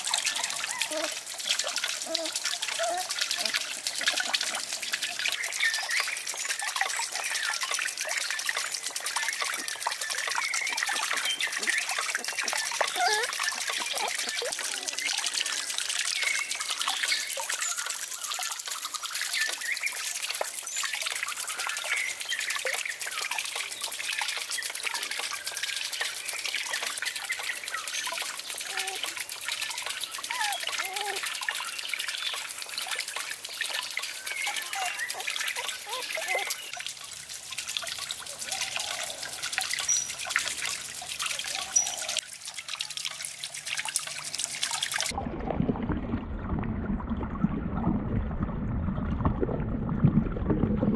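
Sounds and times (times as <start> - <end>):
water trickling into a pool: 0.0 - 50.9.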